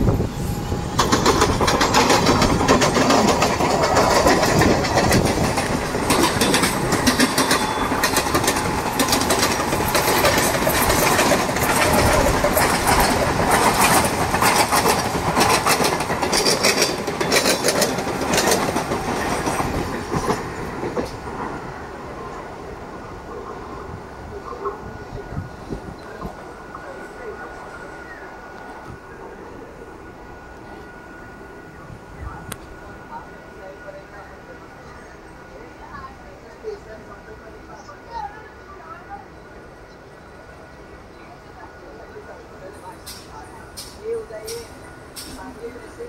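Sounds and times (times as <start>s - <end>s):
train passing: 0.0s - 46.0s
train wheels clattering over rail joints: 0.8s - 21.6s, 43.0s - 46.0s.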